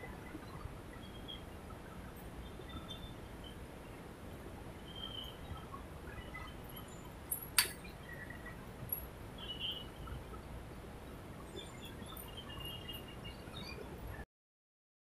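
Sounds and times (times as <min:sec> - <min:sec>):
sharp click: 0:07.3 - 0:07.8.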